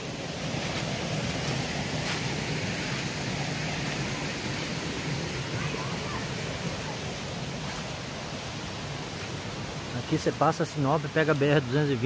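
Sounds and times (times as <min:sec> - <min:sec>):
footsteps on dry leaves: 0:00.0 - 0:05.2, 0:07.1 - 0:10.4
forest stream rushing: 0:00.0 - 0:12.0.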